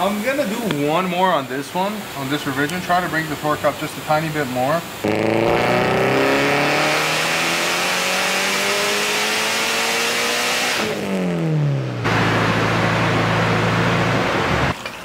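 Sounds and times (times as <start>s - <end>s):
turbocharged car engine revving: 5.0s - 14.8s.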